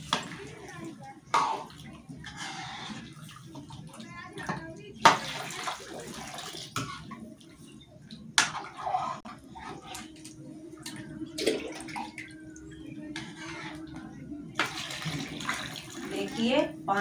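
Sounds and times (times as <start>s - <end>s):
water splashing into a pan: 3.3s - 7.1s, 14.6s - 16.2s.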